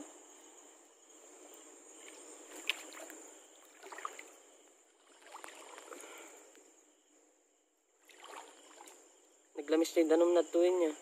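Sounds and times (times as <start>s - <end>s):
river water sloshing: 1.5s - 6.5s, 7.9s - 9.5s.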